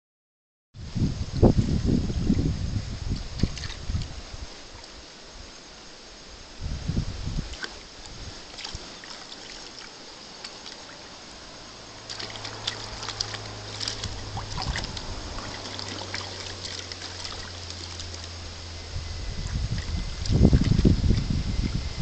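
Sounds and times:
water splashing in a plastic tub: 0:03.1 - 0:04.2, 0:07.3 - 0:18.6, 0:19.2 - 0:22.0.

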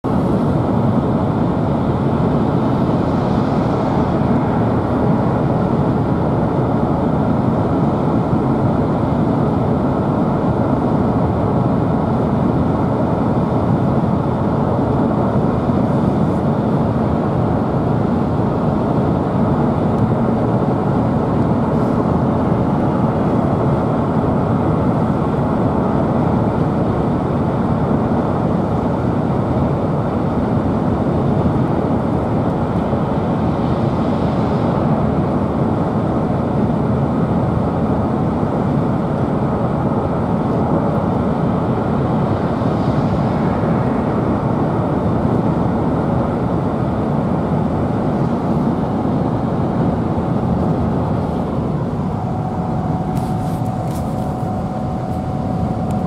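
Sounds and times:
car road noise from inside: 0:50.4 - 0:56.0.

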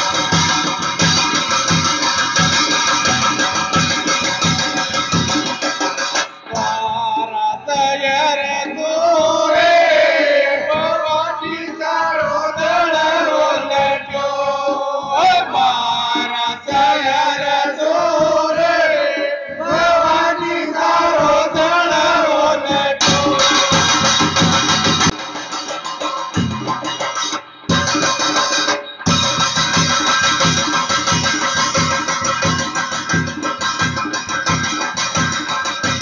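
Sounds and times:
instrumental backing: 0:00.0 - 0:18.9, 0:19.5 - 0:36.0
person singing devotional song: 0:06.5 - 0:24.3.

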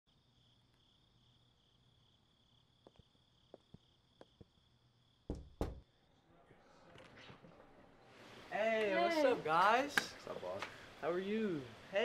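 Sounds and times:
crickets chirping: 0:00.1 - 0:06.6
heavy thumps: 0:05.3 - 0:05.9.

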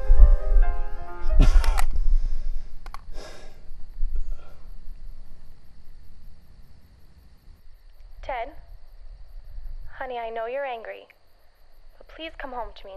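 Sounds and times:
low rumble: 0:00.0 - 0:10.3
crickets chirping: 0:00.0 - 0:12.9.

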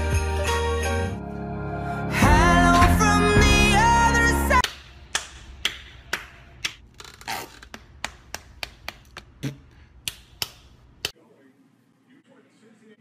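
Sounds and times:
hand slaps and claps: 0:04.6 - 0:06.8, 0:07.6 - 0:11.2.

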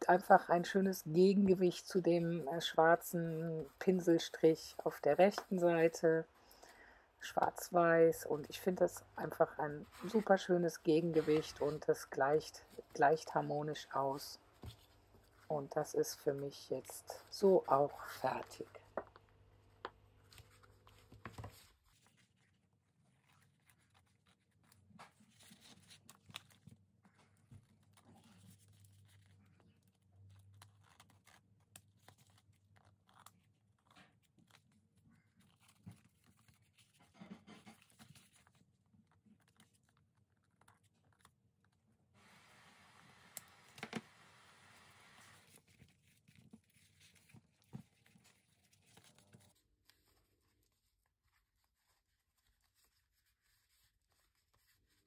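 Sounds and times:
paper rustling: 0:09.2 - 0:19.1, 0:20.2 - 0:41.4, 0:43.6 - 0:55.0.

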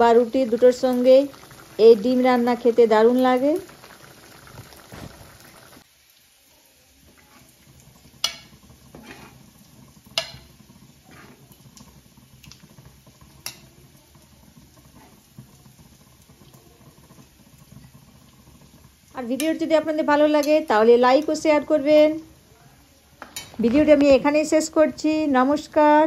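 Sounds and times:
faint steady hiss: 0:00.0 - 0:26.0
metal ladle clinking on pan: 0:08.2 - 0:09.4, 0:10.1 - 0:10.5, 0:23.2 - 0:23.6.

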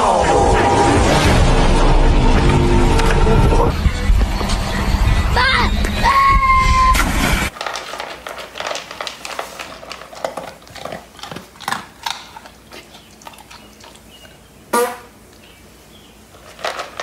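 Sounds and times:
loud noise: 0:00.0 - 0:07.5
dog crunching dry kibble: 0:07.5 - 0:14.4, 0:16.3 - 0:17.0.

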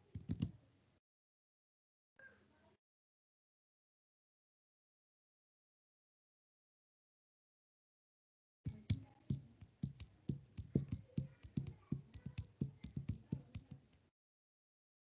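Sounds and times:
keyboard typing clicks: 0:08.7 - 0:14.0.

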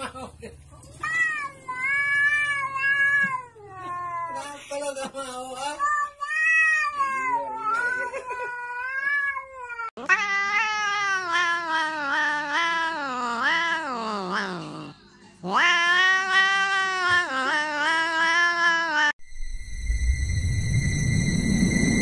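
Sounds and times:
cat meowing: 0:01.0 - 0:04.6, 0:05.8 - 0:19.2
cat yowling: 0:01.0 - 0:04.6, 0:05.8 - 0:19.2.

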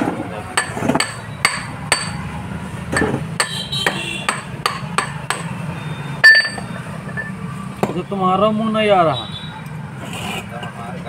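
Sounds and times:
metal pipe knocking on metal: 0:02.9 - 0:05.5.

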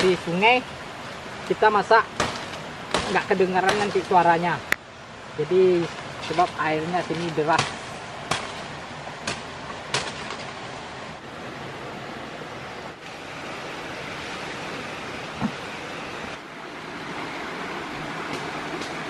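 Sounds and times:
forest stream rushing: 0:00.0 - 0:19.0
machete chopping brush: 0:02.1 - 0:04.3, 0:06.0 - 0:10.6.

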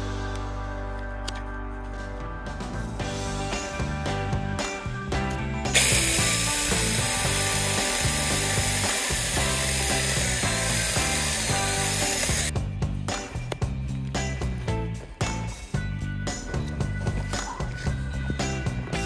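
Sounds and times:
background music: 0:00.0 - 0:19.0
mini chainsaw cutting wood: 0:05.8 - 0:12.5.

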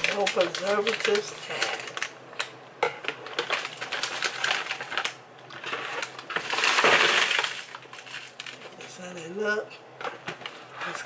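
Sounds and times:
frozen shrimp clattering into tub: 0:00.0 - 0:02.1, 0:03.2 - 0:08.8
plastic bag rattling and crinkling: 0:00.0 - 0:02.5, 0:03.1 - 0:09.0.

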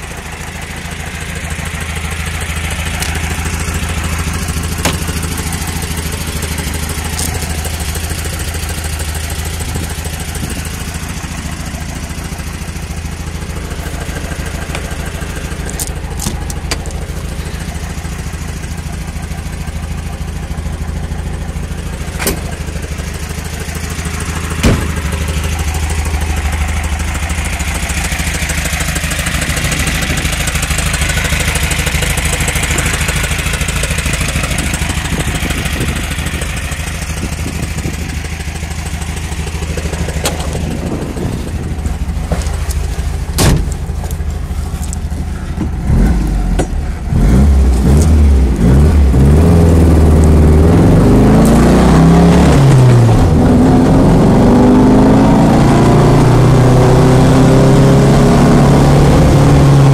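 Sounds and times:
car engine idling: 0:00.0 - 0:59.9
sharp clicks and knocks: 0:04.8 - 0:05.5, 0:14.4 - 0:17.1, 0:22.2 - 0:22.5, 0:39.7 - 0:45.8, 0:46.5 - 0:46.9.

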